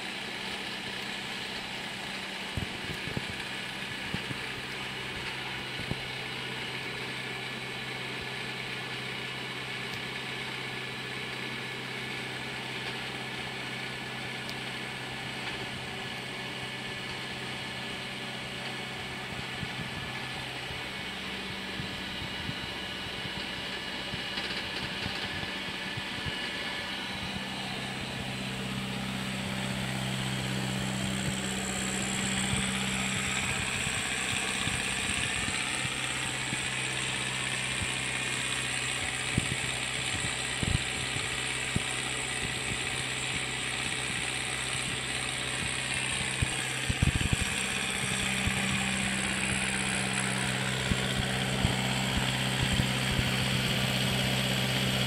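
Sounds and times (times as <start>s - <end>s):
tractor diesel engine running: 0.0s - 55.0s
high-pitched whine: 18.4s - 55.0s.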